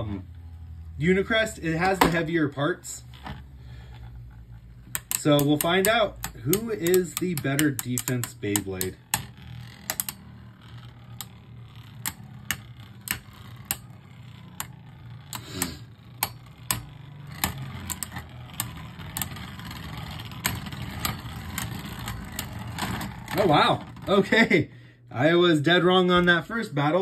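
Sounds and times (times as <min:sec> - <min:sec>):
spinning tops whirring: 0:00.0 - 0:24.6
spinning tops clacking together: 0:04.0 - 0:24.1.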